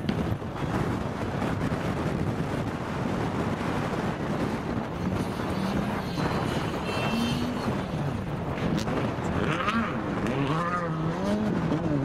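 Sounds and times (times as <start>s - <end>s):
wind buffeting microphone: 0.0s - 12.0s
rally car engine revving: 4.6s - 12.0s.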